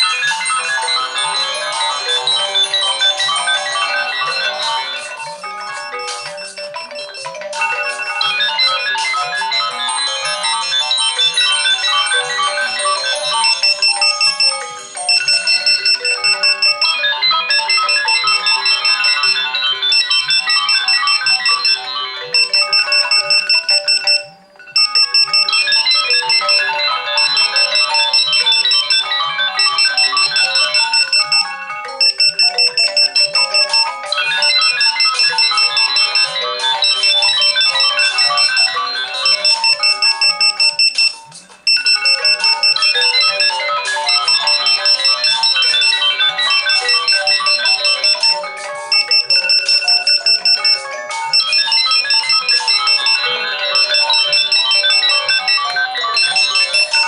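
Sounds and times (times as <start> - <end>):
electronic alarm melody: 0.0 - 57.0
high beeping alarm tone: 0.0 - 57.0.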